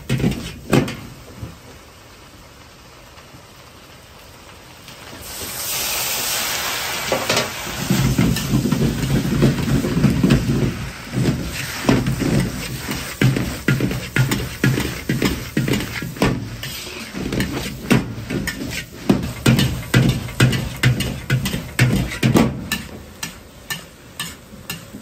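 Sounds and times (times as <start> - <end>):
sizzling and hissing steam: 0.0 - 25.0
metal ladle scraping a wok: 0.1 - 0.6, 7.2 - 25.0.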